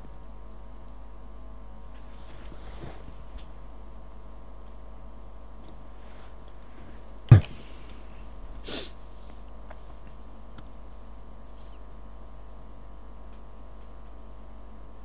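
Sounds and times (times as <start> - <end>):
low hum with faint tones: 0.0 - 15.0
sharp thump: 7.3 - 7.6
short sniff: 8.6 - 10.2.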